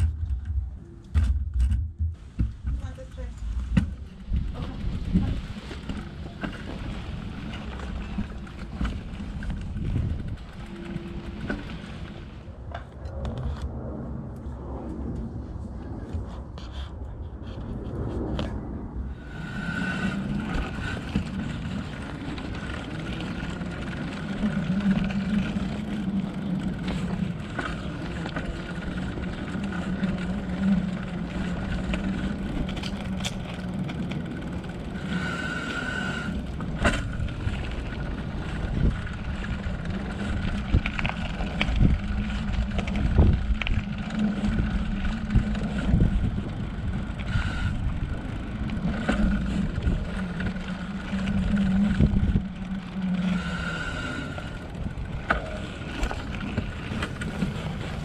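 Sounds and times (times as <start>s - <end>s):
bike knocks and rattles: 0.0s - 12.0s
low hum: 0.0s - 58.0s
wind on microphone: 0.0s - 58.0s
tyres rumbling on concrete: 54.3s - 58.0s.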